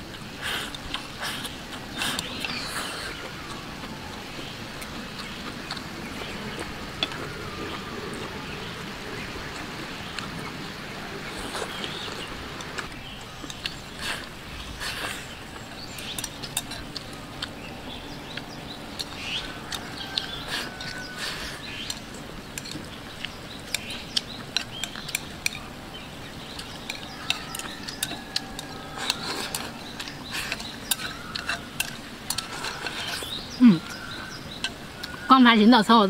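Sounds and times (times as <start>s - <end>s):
chewing and slurping: 0.0s - 35.4s
chopsticks clicking against a bowl: 15.6s - 17.5s, 21.8s - 35.3s.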